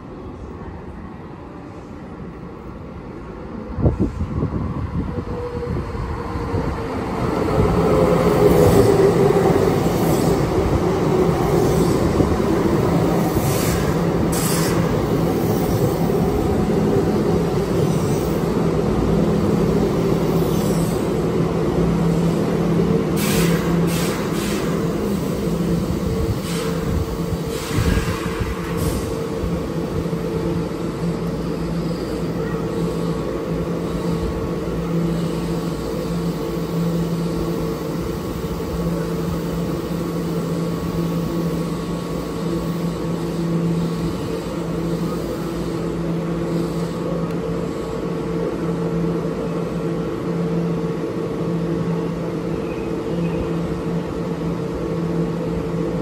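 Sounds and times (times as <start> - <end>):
electric train humming: 0.0 - 56.0
short sharp hisses and knocks: 13.5 - 14.8, 23.2 - 24.8, 26.4 - 26.8.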